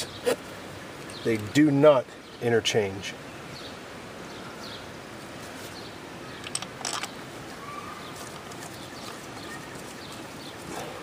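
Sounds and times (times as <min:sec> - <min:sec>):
faint bird chirps: 0:03.3 - 0:04.9, 0:07.4 - 0:11.0.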